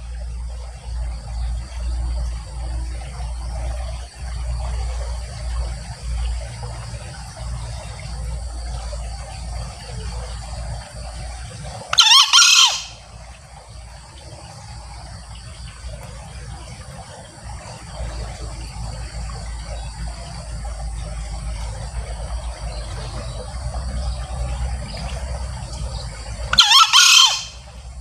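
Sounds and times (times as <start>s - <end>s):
junglefowl crowing: 11.9s - 13.0s, 26.5s - 27.7s.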